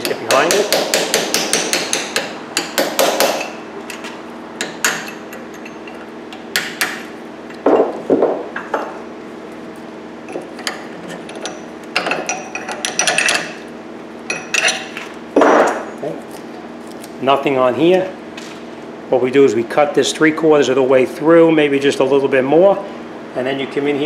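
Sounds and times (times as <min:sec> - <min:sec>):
hammer striking chisel: 0:00.0 - 0:03.6, 0:04.6 - 0:05.2.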